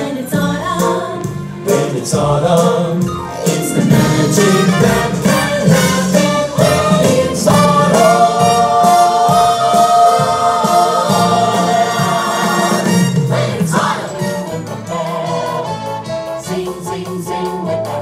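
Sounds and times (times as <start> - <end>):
band accompaniment: 0.0 - 18.0
chorus singing upbeat show tune: 0.0 - 18.0.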